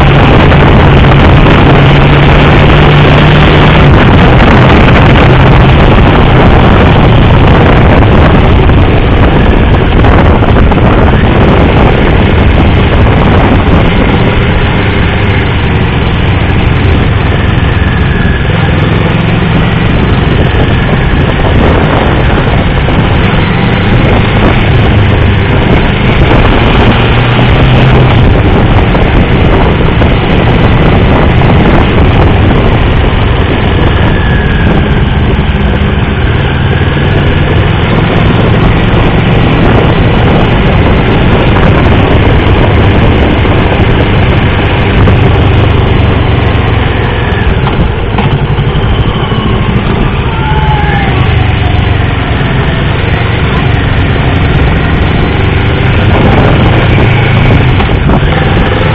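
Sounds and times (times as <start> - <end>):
motorcycle engine running: 0.0 - 58.9
wind rush over microphone: 0.0 - 58.9.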